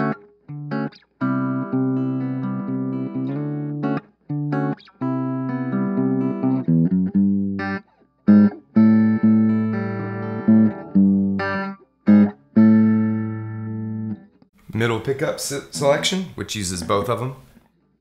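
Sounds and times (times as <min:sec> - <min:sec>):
clean electric guitar chords: 0:00.0 - 0:14.4.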